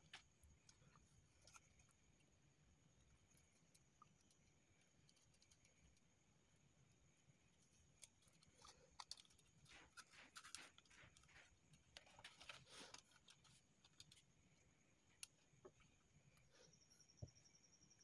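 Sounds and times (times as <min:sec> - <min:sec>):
wires scraping plastic casing: 0:08.0 - 0:14.3.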